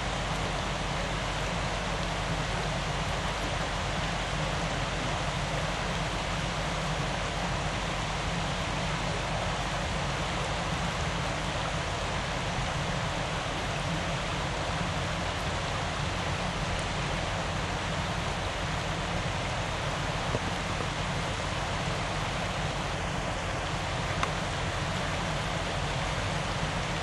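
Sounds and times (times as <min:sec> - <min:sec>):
river rushing over rocks: 0:00.0 - 0:27.0.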